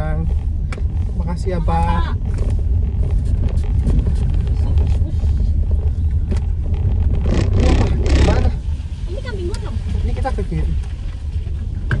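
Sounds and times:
car engine rumble: 0.0s - 12.0s.

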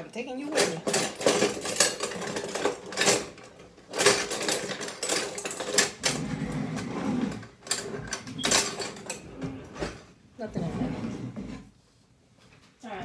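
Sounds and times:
metal utensils clattering: 0.2s - 10.0s.

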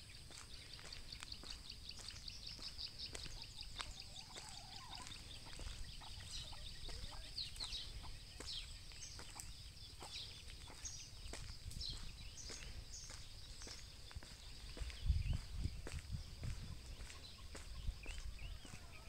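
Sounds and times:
footsteps on concrete: 0.0s - 19.0s
small birds chirping and trilling: 0.0s - 19.0s
wind rumble on microphone: 0.3s - 19.0s.

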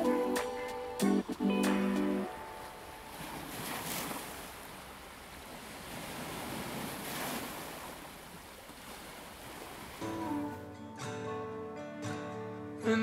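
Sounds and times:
acoustic guitar music: 0.0s - 3.4s, 10.0s - 13.0s
sea water washing: 0.0s - 10.6s.

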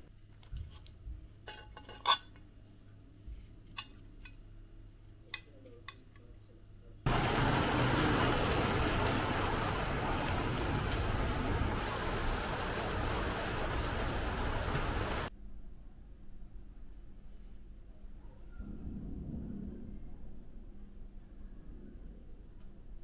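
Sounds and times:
steady outdoor hiss: 7.1s - 15.3s.

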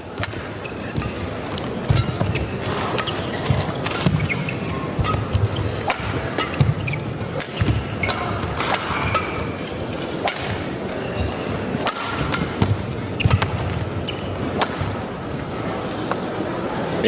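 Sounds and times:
rackets striking shuttlecock: 0.1s - 15.4s
shoes squeaking on court: 0.1s - 16.6s.

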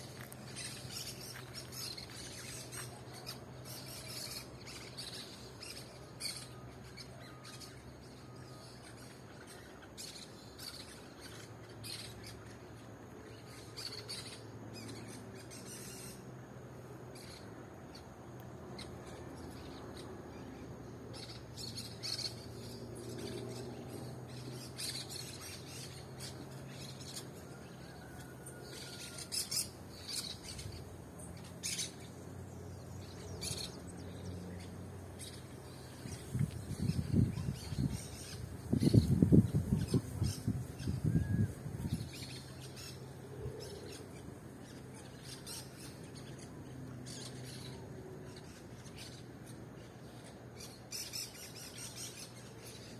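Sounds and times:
parakeets chirping and squawking: 21.2s - 52.8s.

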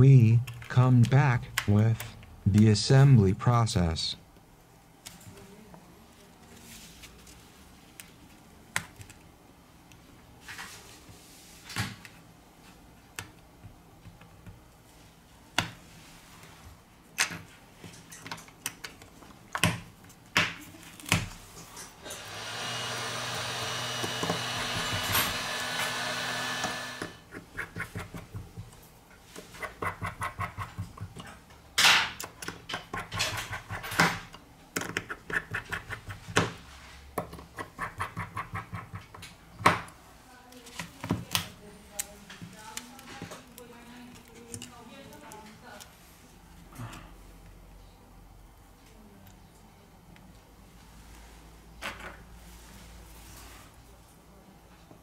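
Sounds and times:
steady whirr: 22.0s - 27.2s.

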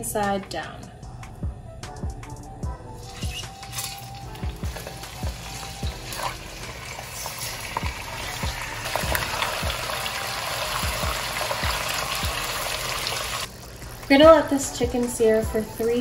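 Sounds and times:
chicken sizzling in hot oil: 3.0s - 14.9s.

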